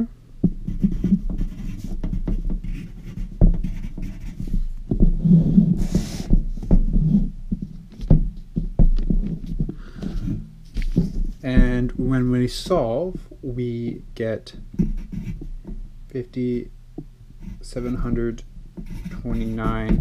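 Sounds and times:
low steady hum: 0:00.0 - 0:20.0
pencil writing on paper: 0:00.7 - 0:06.4, 0:14.8 - 0:15.5, 0:17.4 - 0:20.0
knocks and thumps of hands: 0:08.0 - 0:12.0.

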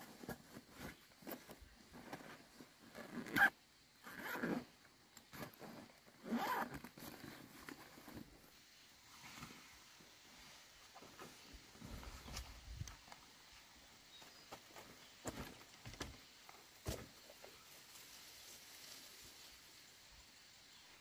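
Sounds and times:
backpack zippers zipping: 0:02.0 - 0:04.7, 0:05.3 - 0:08.2.

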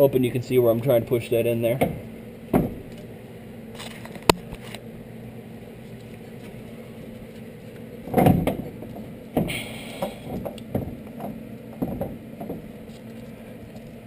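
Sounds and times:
steady hum: 0:00.0 - 0:14.0.

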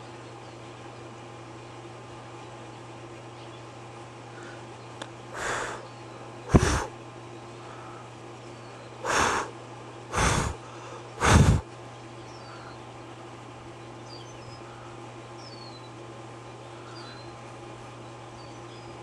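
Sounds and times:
steady low hum: 0:00.0 - 0:19.0
breath puffs on microphone: 0:06.5 - 0:06.9, 0:10.1 - 0:11.7.

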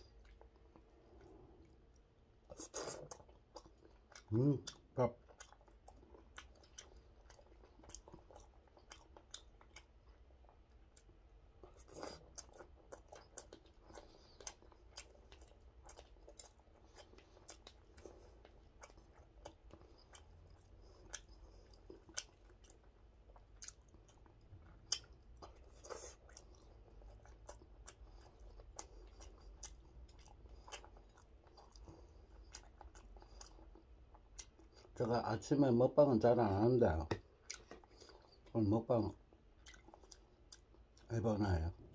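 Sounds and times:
person chewing: 0:00.0 - 0:35.0, 0:37.0 - 0:41.1.

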